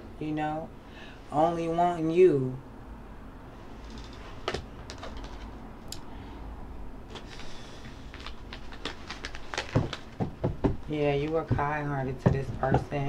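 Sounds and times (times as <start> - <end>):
cards rustling: 3.9 - 5.6, 7.1 - 10.4
cards clicking and tapping: 8.1 - 10.8.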